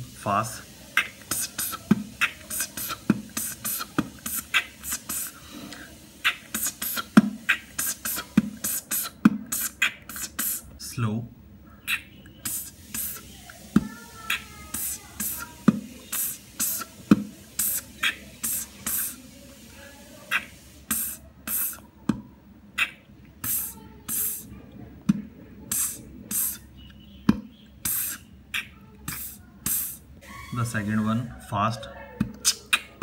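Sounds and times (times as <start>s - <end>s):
person beatboxing: 0.9s - 10.8s, 11.9s - 19.2s, 20.3s - 22.2s, 22.8s - 24.5s, 25.1s - 26.7s, 27.3s - 30.0s, 32.2s - 33.0s.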